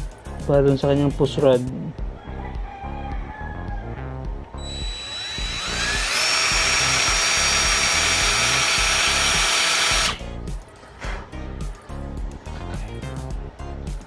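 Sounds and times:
background music with steady beat: 0:00.0 - 0:14.0
power drill whining: 0:04.6 - 0:10.2.

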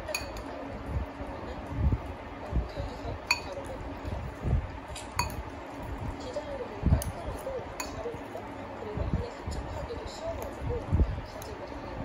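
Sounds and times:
cutlery clinking on ceramic bowl: 0:00.0 - 0:00.5, 0:03.2 - 0:03.7, 0:05.0 - 0:05.4, 0:07.8 - 0:08.0.

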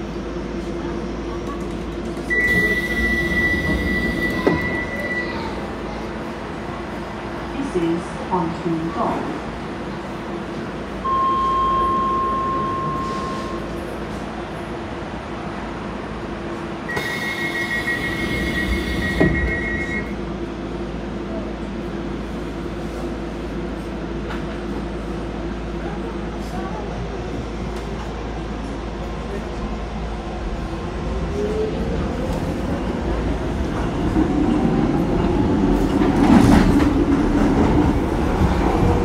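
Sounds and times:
train humming: 0:00.0 - 0:39.0
train doors shutting: 0:00.6 - 0:06.5, 0:11.0 - 0:14.4, 0:16.6 - 0:20.2, 0:27.4 - 0:39.0
door-closing warning tone: 0:02.3 - 0:05.5, 0:11.0 - 0:13.7, 0:16.9 - 0:20.1.

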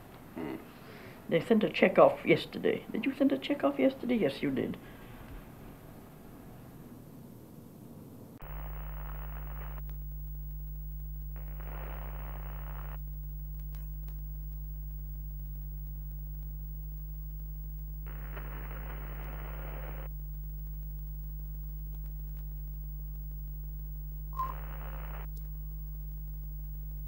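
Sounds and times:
low electrical hum: 0:00.0 - 0:27.0
television static hiss: 0:00.0 - 0:27.0
click: 0:08.4 - 0:10.6, 0:11.2 - 0:17.0, 0:21.7 - 0:23.3, 0:24.4 - 0:27.0.

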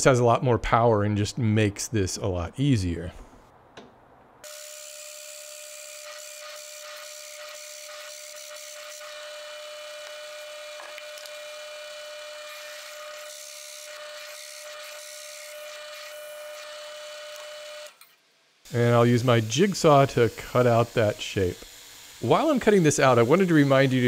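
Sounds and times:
drill bit cutting wood: 0:04.4 - 0:18.0, 0:18.8 - 0:24.0
drill press motor whine: 0:04.4 - 0:18.2.

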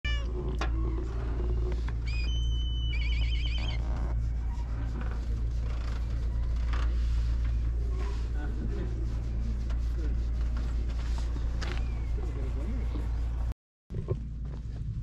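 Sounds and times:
steady low rumble: 0:00.1 - 0:15.0
high whistling calls: 0:02.0 - 0:03.8.

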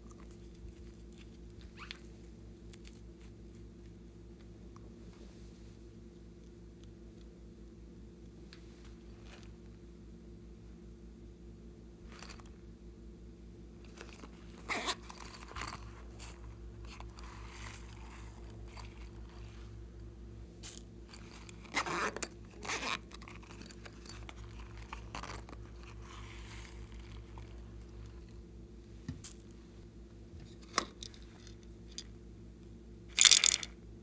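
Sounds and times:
pouches rustling and scraping: 0:08.6 - 0:09.7, 0:13.8 - 0:28.4.

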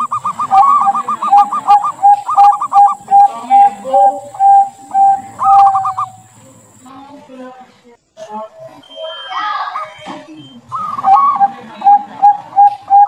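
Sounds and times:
dove cooing: 0:00.0 - 0:06.8, 0:10.7 - 0:13.0.

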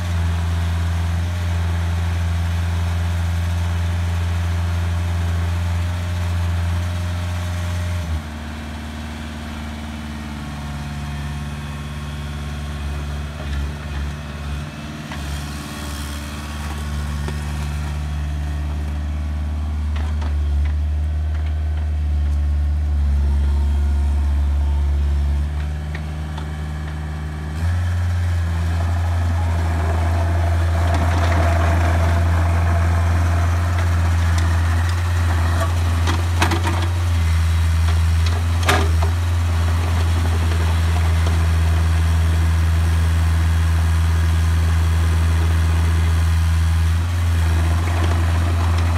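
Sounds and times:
diesel excavator engine running: 0:00.0 - 0:48.9
grainy rushing noise: 0:28.0 - 0:36.4.

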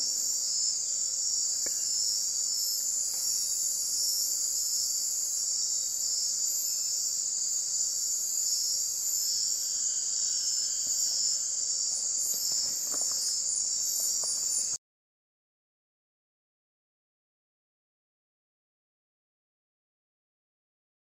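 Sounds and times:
insect chorus shrill trilling: 0:00.0 - 0:14.8.

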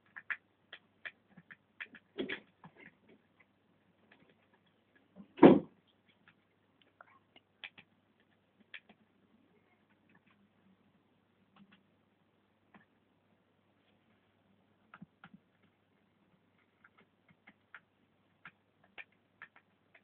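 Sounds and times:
thump: 0:05.4 - 0:05.7.

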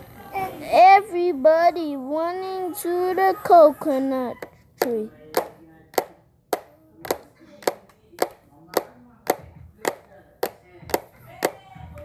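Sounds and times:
hand claps: 0:04.8 - 0:12.0.

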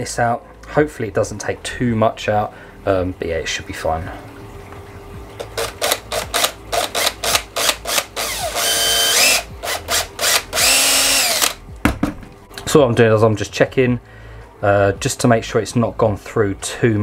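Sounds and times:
cordless drill whining: 0:05.6 - 0:11.6.

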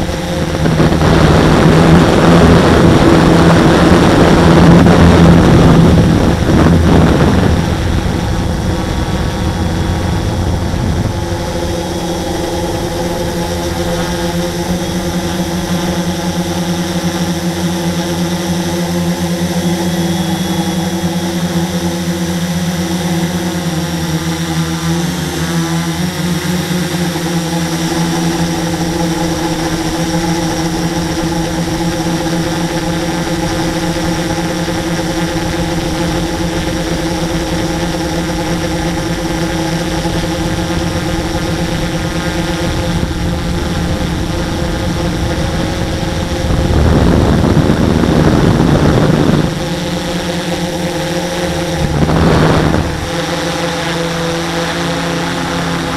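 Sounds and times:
loud rushing noise: 0:00.0 - 0:17.2, 0:42.6 - 0:54.7
model aircraft motor and propeller: 0:00.0 - 0:55.9.

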